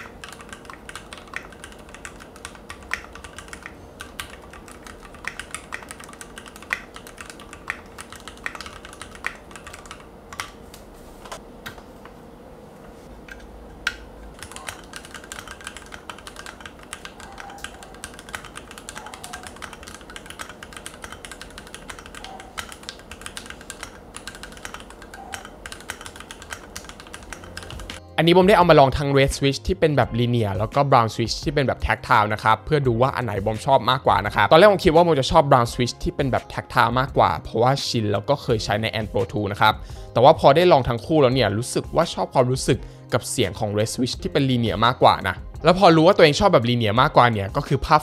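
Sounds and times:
mechanical keyboard typing: 0:00.0 - 0:10.6, 0:13.9 - 0:28.0.

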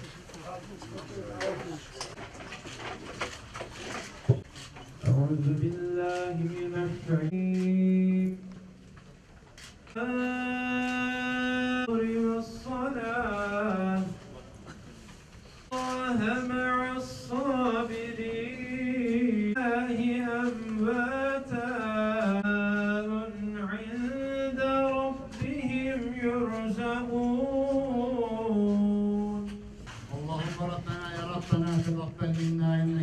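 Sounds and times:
man chanting religious recitation: 0:05.0 - 0:08.5, 0:15.7 - 0:33.0.

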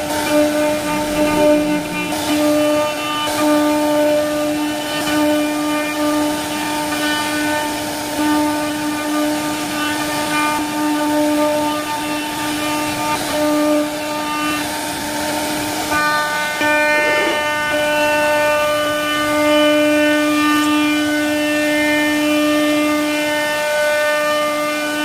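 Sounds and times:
router spindle whine: 0:00.0 - 0:07.0, 0:15.8 - 0:23.1
hiss of wood cutting: 0:00.0 - 0:23.6.

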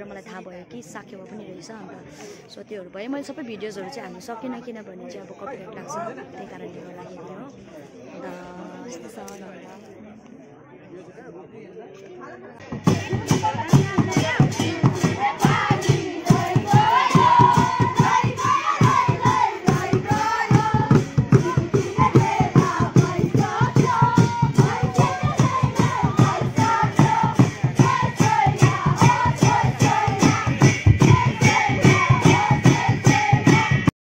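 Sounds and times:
barrel drum beating: 0:12.6 - 0:33.9
group of voices singing: 0:12.9 - 0:33.9.

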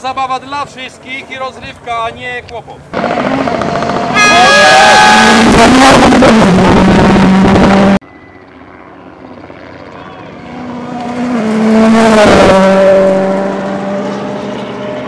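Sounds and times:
rally car passing with gear changes: 0:02.9 - 0:08.5, 0:09.1 - 0:15.0
rally car engine at full throttle: 0:03.0 - 0:08.0, 0:09.2 - 0:15.0.

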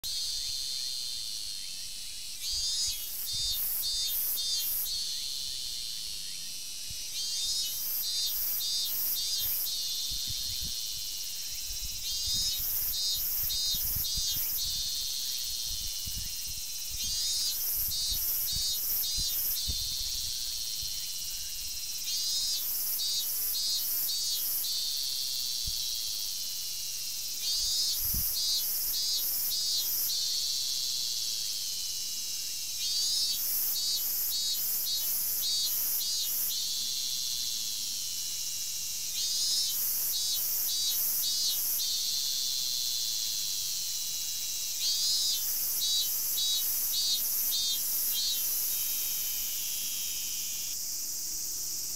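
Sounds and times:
cicada singing: 0:00.0 - 0:51.9
steady high buzz: 0:00.0 - 0:51.9.

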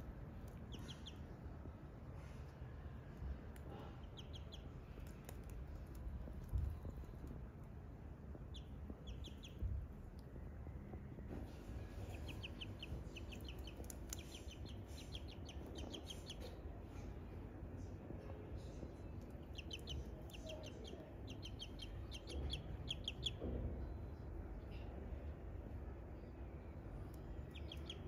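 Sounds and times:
ducklings peeping: 0:00.4 - 0:01.4, 0:03.8 - 0:05.5, 0:08.3 - 0:09.8, 0:11.5 - 0:16.6, 0:19.2 - 0:23.5, 0:27.1 - 0:28.0.

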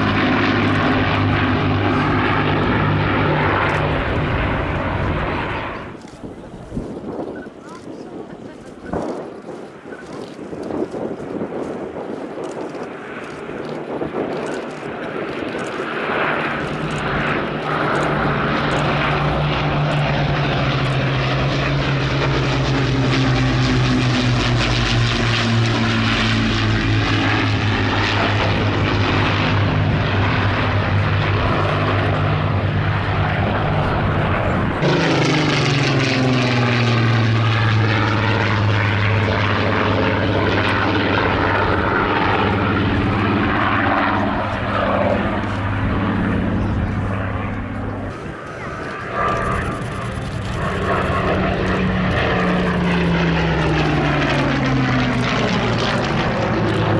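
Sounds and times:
piston aircraft engines droning: 0:00.0 - 0:56.9
propeller fighter passing: 0:00.0 - 0:56.9.

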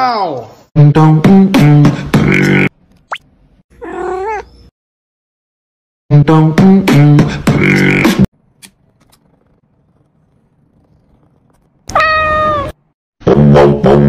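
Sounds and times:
cat meowing: 0:03.8 - 0:04.5, 0:11.8 - 0:12.8.

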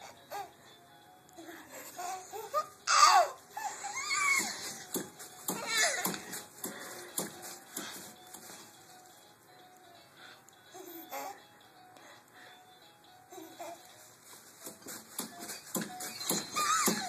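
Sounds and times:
baby squealing and babbling: 0:02.4 - 0:04.6, 0:05.6 - 0:06.1.

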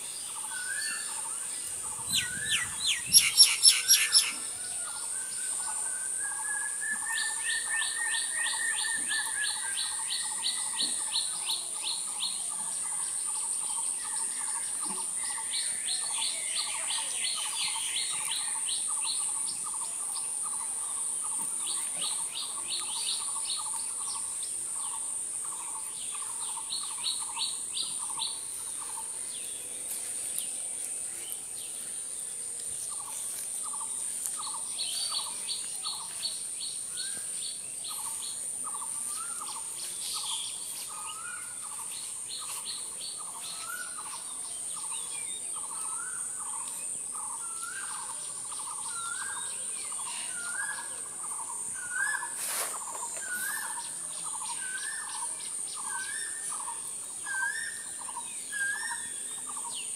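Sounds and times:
birds singing: 0:00.0 - 0:59.9
insects buzzing: 0:00.0 - 0:59.9.

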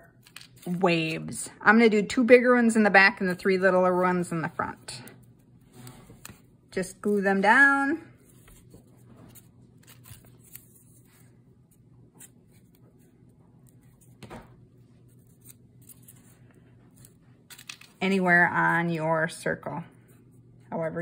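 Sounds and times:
paper rustling: 0:08.2 - 0:18.0.

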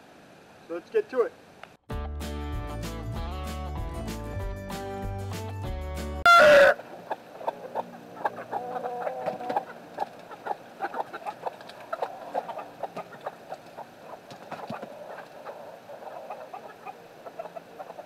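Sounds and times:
chickens clucking: 0:06.2 - 0:18.0
loud bending chicken call: 0:06.2 - 0:18.0.

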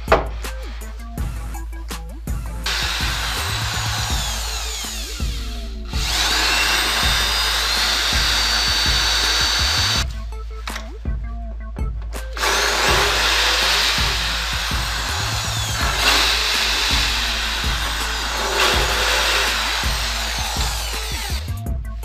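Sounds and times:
background music: 0:00.0 - 0:22.0
electric drill boring into chipboard: 0:02.7 - 0:10.1, 0:12.4 - 0:21.6.

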